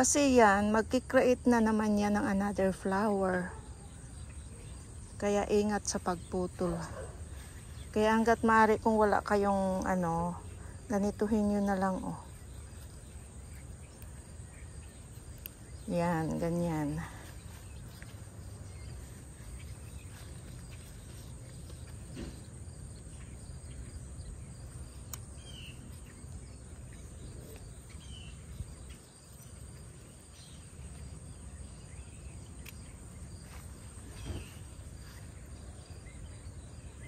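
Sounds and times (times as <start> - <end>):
insects trilling: 0.0 - 37.0
bird chirps: 9.7 - 37.0
faint sharp clicks: 15.2 - 15.6, 25.0 - 25.3, 32.6 - 32.9.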